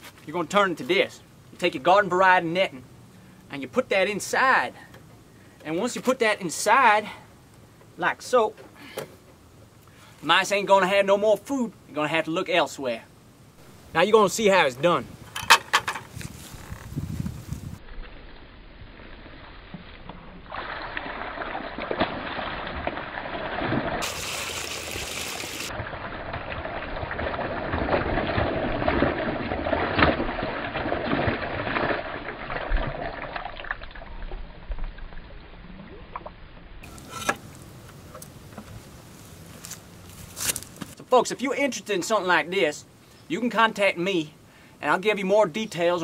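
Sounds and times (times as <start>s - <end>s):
water pouring onto grass: 19.0s - 34.6s.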